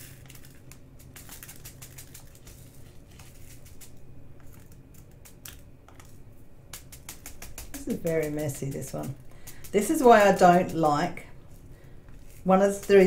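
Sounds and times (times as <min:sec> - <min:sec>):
low steady hum: 0:00.0 - 0:13.0
tiny beads ticking on plastic: 0:03.4 - 0:11.2.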